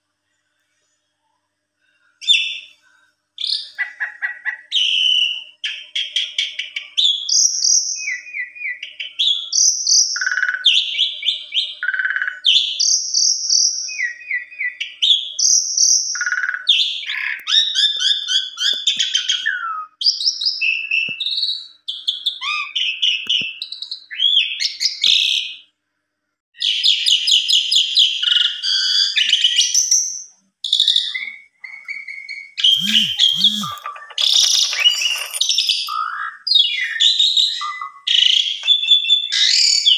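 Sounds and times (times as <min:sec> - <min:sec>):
starling singing: 0:31.0 - 0:39.9.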